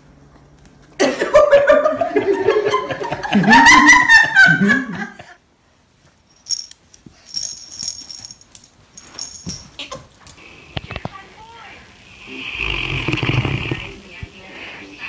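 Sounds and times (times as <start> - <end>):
loud laughter: 1.0 - 5.4.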